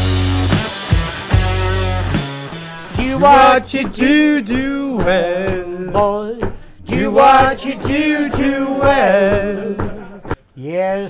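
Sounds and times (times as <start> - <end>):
man singing unaccompanied: 2.8 - 10.1.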